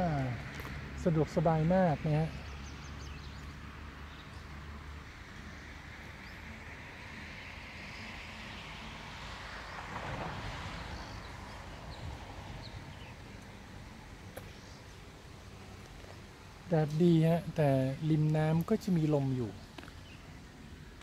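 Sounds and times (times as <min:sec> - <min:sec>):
steady hiss: 0:07.7 - 0:21.0.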